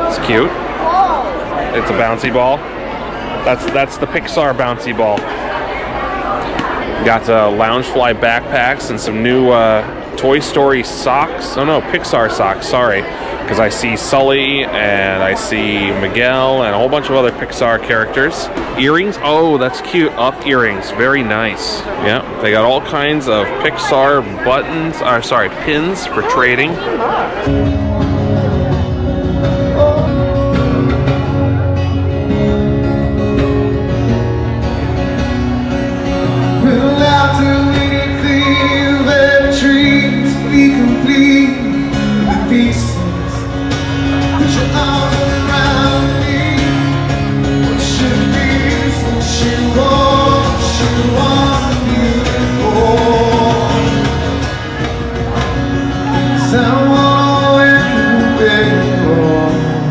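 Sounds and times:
acoustic guitar: 0.0s - 59.9s
man singing: 28.2s - 32.0s, 36.5s - 54.4s, 56.1s - 59.9s.

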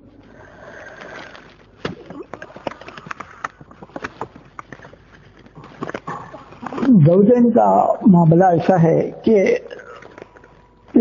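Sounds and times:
microphone rustle: 1.0s - 7.0s
microphone clicks and crackles: 1.0s - 7.1s.

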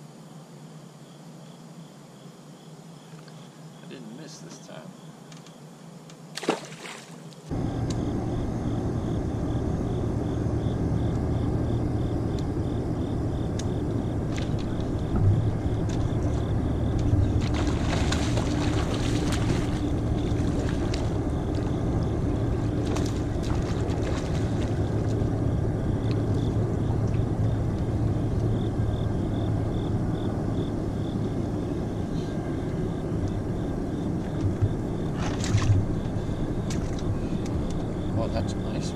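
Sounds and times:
fish splashing at surface: 6.4s - 7.2s, 17.1s - 21.2s
boat motor humming: 7.5s - 38.9s.

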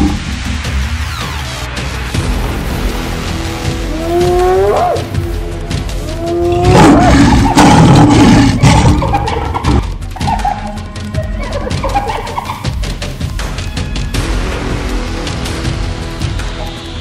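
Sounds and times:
background music: 0.0s - 17.0s
hyenas growling and roaring: 6.0s - 10.6s
hyenas calling: 6.0s - 12.7s.

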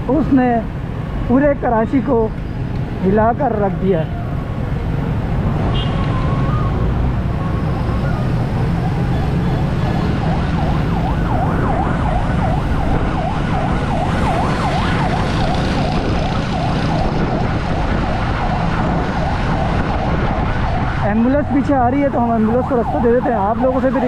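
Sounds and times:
low rumble of traffic: 0.0s - 24.0s
ambulance siren yelping: 5.5s - 24.0s.

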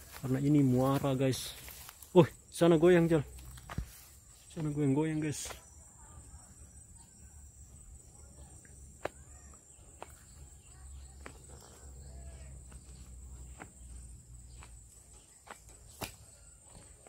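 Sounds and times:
high insect drone: 0.0s - 17.0s.

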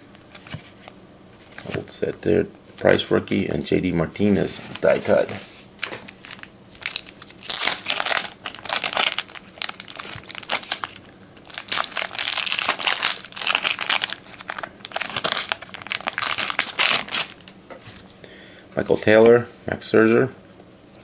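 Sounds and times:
plastic crinkling and rustling: 4.6s - 18.1s.

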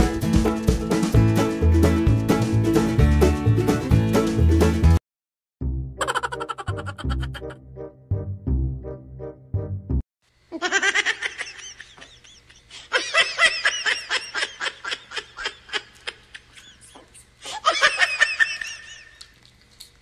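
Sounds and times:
person laughing in high bursts: 6.0s - 7.6s, 10.5s - 19.2s.

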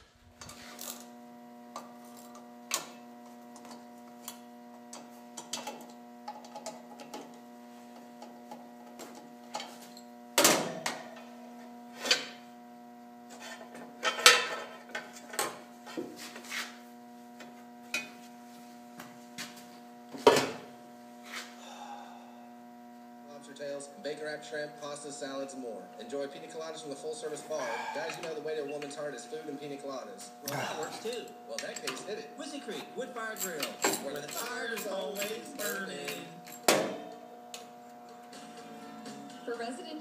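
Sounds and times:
steady hum: 0.0s - 40.0s
metal parts clinking: 33.3s - 36.6s.

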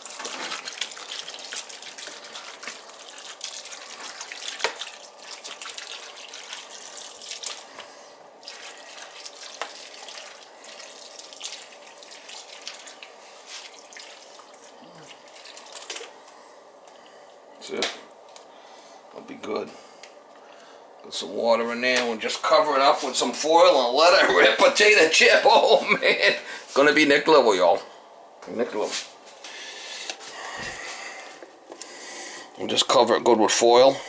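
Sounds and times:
water running and splashing: 0.0s - 16.2s.

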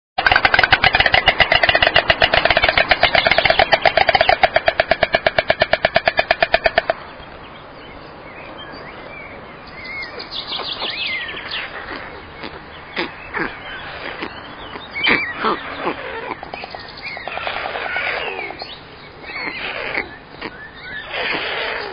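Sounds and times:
storks clattering bills: 0.2s - 7.0s, 19.3s - 21.9s
high bird chirps: 0.3s - 21.9s.

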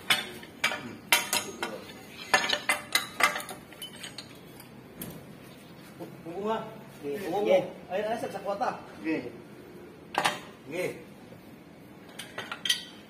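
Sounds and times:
pipe wrenches clanking on pipe: 0.0s - 4.4s.

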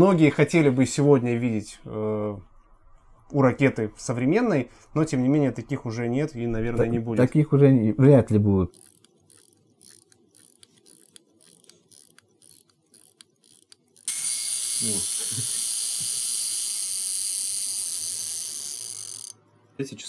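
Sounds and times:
watch winding ratchet clicks: 8.7s - 19.5s.

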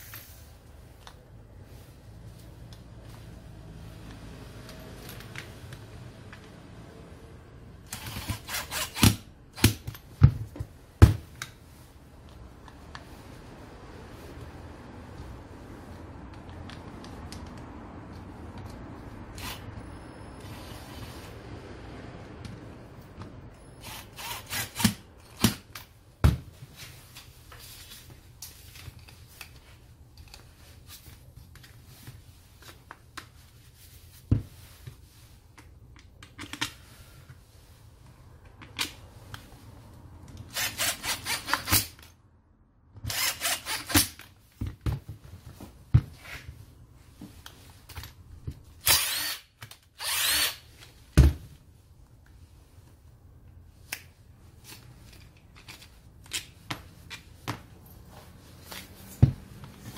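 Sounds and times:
cordless drill running: 48.8s - 50.6s.

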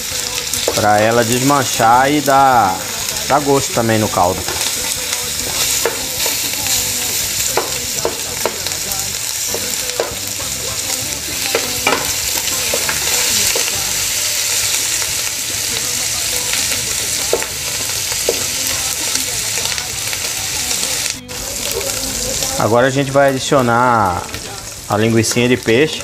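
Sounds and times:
meat sizzling in oil: 0.0s - 26.0s.

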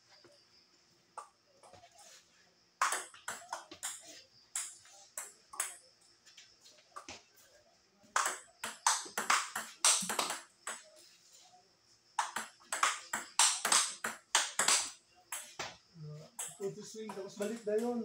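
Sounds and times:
table tennis ball hits: 2.8s - 5.8s, 8.1s - 10.9s, 12.2s - 15.8s.

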